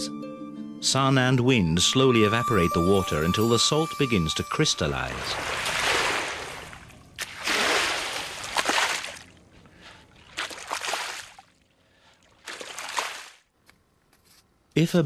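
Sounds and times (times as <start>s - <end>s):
water sloshing and splashing: 5.0s - 13.5s.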